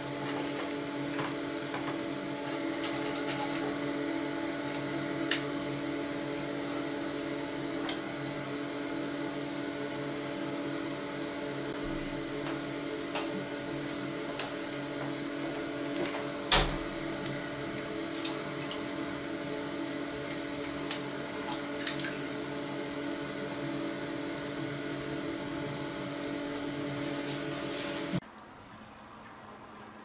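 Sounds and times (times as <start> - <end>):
toothbrush scrubbing metal parts: 2.6 - 5.4.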